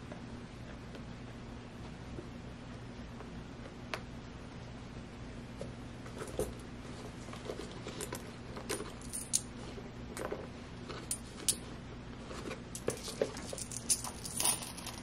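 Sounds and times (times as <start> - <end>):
coins clinking: 8.0 - 9.5, 12.8 - 15.0
bag rustling: 12.8 - 15.0.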